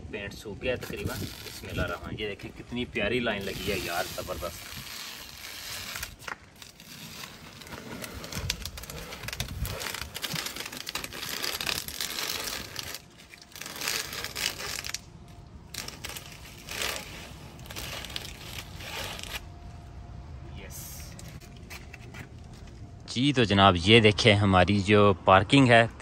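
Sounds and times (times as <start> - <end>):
tape peeling off concrete: 0.6 - 2.4, 3.0 - 19.8, 21.0 - 22.8.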